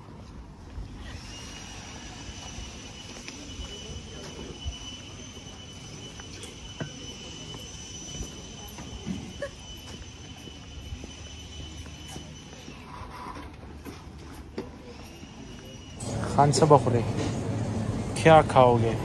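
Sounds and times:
high-pitched whine: 0:00.7 - 0:19.0
outdoor background rumble: 0:16.0 - 0:19.0.

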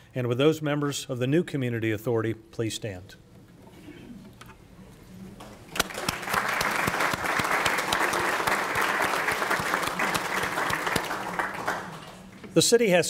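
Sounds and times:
audience clapping: 0:05.5 - 0:12.4.

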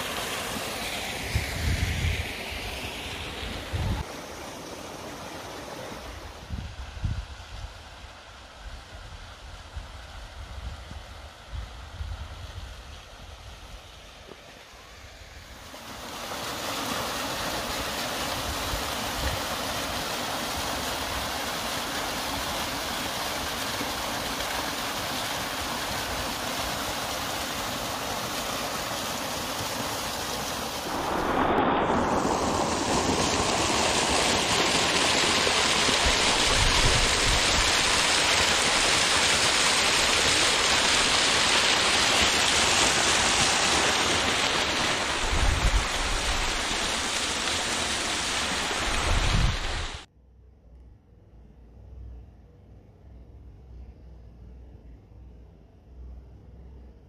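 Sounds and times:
waterfall splashing onto rocks: 0:00.0 - 0:06.2, 0:15.7 - 0:50.1.

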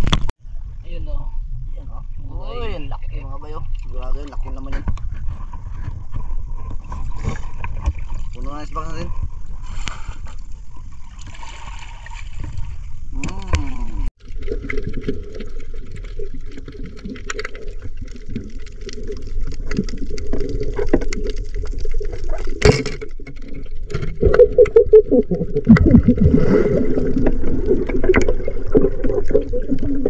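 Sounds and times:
underwater crackling clicks: 0:14.6 - 0:25.9.

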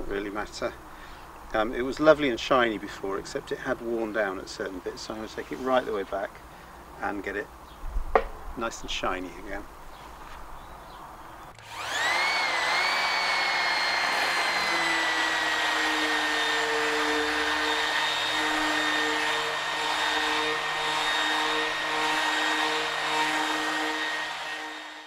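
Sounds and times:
orbital sander sanding wood: 0:11.6 - 0:25.0.

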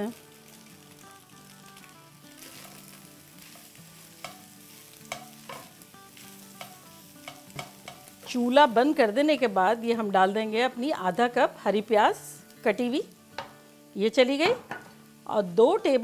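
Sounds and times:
faint sizzle: 0:00.0 - 0:16.0
spatula scraping frying pan: 0:02.4 - 0:08.2
spatula clicking against pan: 0:03.5 - 0:04.4, 0:05.1 - 0:05.7, 0:06.6 - 0:08.1.

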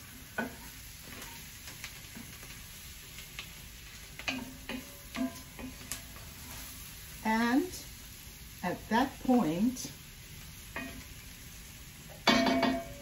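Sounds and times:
meat sizzling in a pot: 0:00.0 - 0:13.0
wooden spoon knocking on pot: 0:12.2 - 0:13.0.

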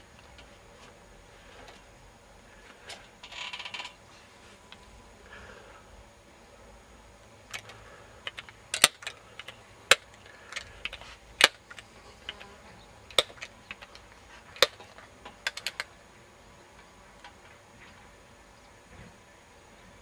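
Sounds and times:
sharp irregular clicks and snaps: 0:07.4 - 0:16.0, 0:16.7 - 0:17.6.

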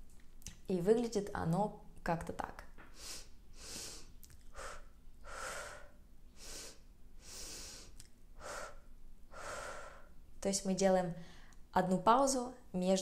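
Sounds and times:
woman breathing slowly: 0:02.9 - 0:10.3, 0:11.2 - 0:11.7.

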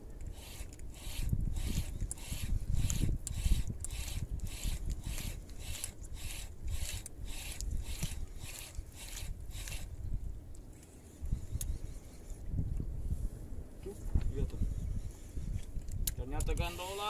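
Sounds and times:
fishing reel whirring: 0:00.3 - 0:10.0.

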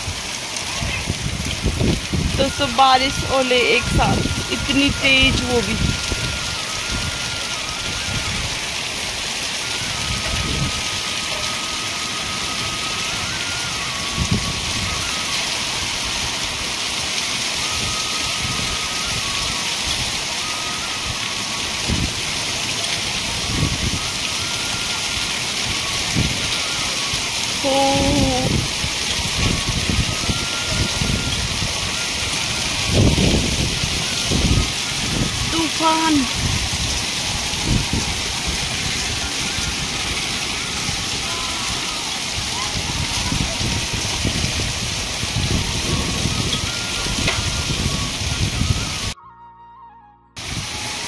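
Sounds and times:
wind buffeting microphone: 0:00.0 - 0:11.2, 0:13.1 - 0:16.8, 0:23.2 - 0:26.8, 0:27.6 - 0:49.2
heavy rain and hail on concrete: 0:00.0 - 0:49.2, 0:50.4 - 0:51.0.

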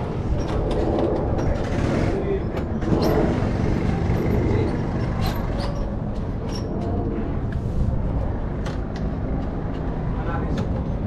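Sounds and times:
go-kart engines idling: 0:00.0 - 0:06.4.

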